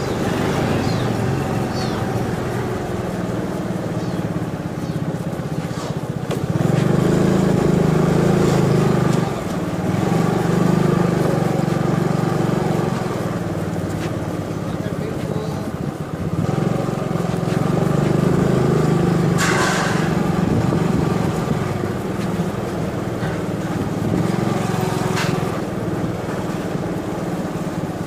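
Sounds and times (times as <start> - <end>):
scooter engine running: 0.0 - 28.0.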